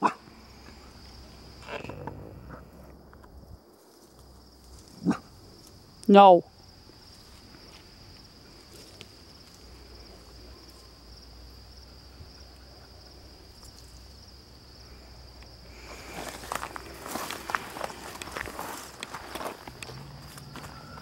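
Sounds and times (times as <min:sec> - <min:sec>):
insects droning: 0:00.0 - 0:21.0
footsteps through dry grass: 0:15.8 - 0:21.0.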